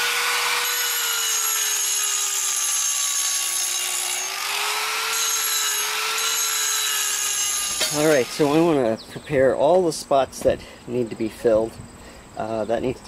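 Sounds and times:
angle grinder cutting concrete: 0.0 - 8.8.

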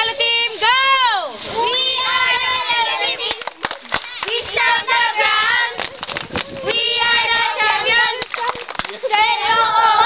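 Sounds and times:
children singing a chant: 1.4 - 5.9, 6.6 - 8.3, 9.0 - 10.0
sharp hand claps: 3.3 - 4.6, 5.8 - 6.7, 8.2 - 9.0.

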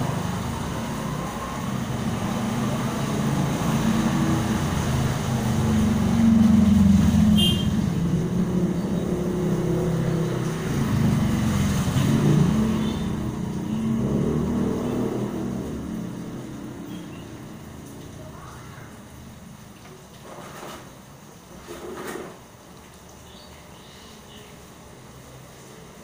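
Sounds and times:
motorbike and scooter engines passing: 0.0 - 19.6
steady rain: 0.0 - 26.0.

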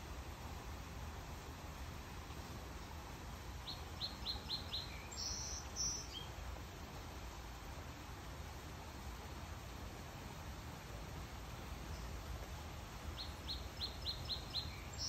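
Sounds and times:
songbird chirping: 2.4 - 6.4, 11.8 - 15.0.

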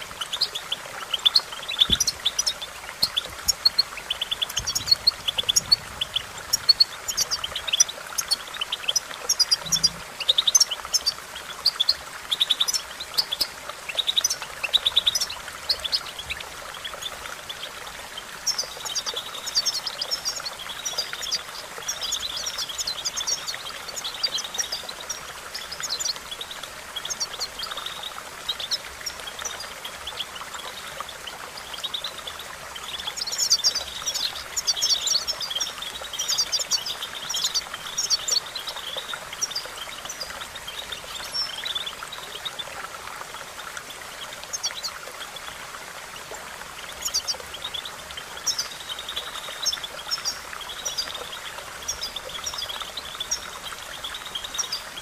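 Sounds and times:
goldfinch twittering chirps: 0.0 - 45.6, 46.8 - 55.0.

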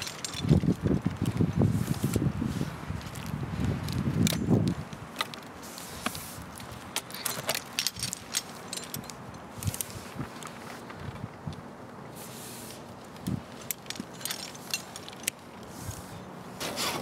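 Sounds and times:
metal carabiners clinking: 0.0 - 1.4, 6.6 - 10.6, 13.0 - 15.7.

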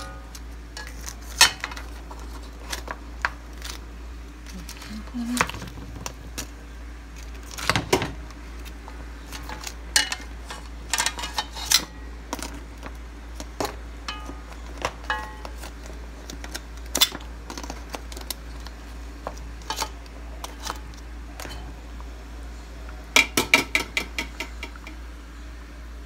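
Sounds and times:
steady background noise: 0.0 - 26.0
pot boiling with ticking clinks: 9.3 - 22.1, 23.2 - 25.2.

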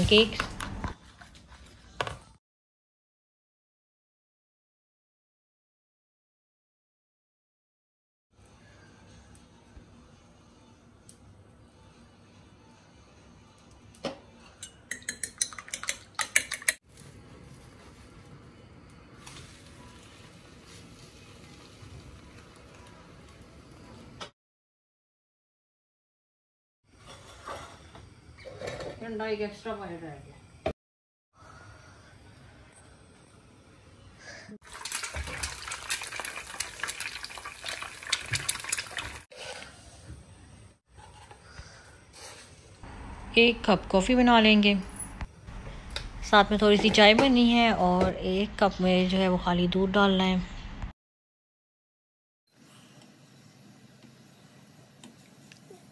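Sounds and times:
egg sizzling in oil: 34.6 - 39.9.

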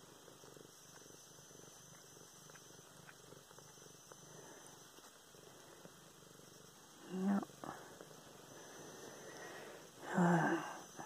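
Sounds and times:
cat purring: 0.0 - 11.0.

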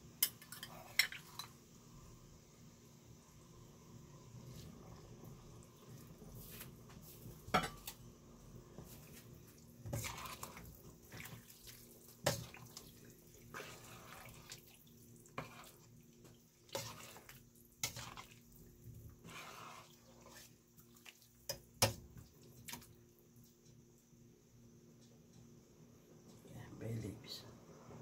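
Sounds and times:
liquid sloshing: 9.9 - 15.9.

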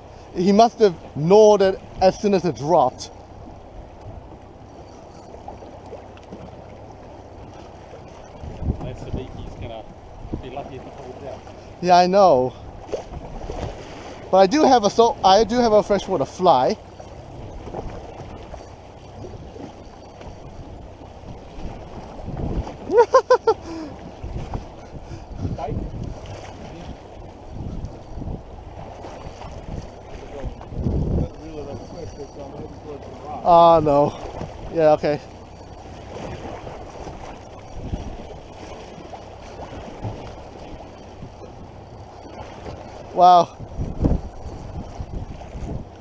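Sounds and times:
choppy sea water: 0.0 - 46.0
wind on microphone: 1.0 - 14.4, 15.0 - 46.0.

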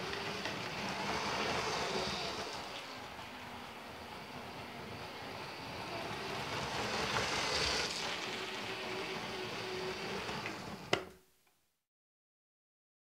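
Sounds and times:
toy train rattling on track: 0.0 - 3.8, 4.8 - 10.8.

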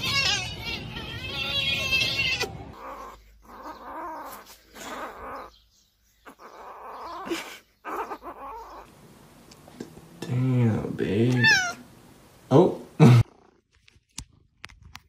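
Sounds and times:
kitten mewing: 0.0 - 5.5, 6.3 - 8.9, 11.3 - 11.8.

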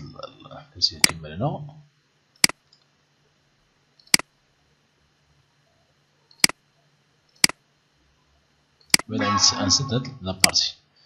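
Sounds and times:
computer mouse button clicks: 6.3 - 6.6, 7.4 - 7.6.

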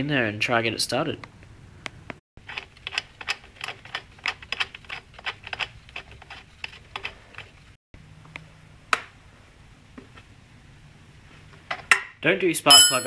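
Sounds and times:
spanner clink on metal: 12.7 - 13.0.

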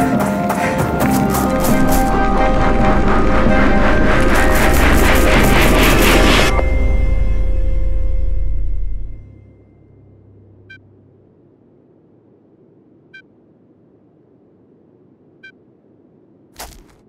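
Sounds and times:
music: 0.0 - 10.6
faint low ambient hiss: 9.2 - 16.6.

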